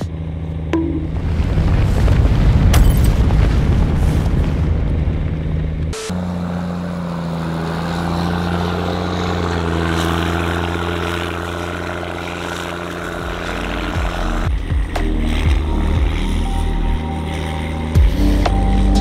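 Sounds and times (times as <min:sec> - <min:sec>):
diesel engine droning: 0:04.7 - 0:19.0.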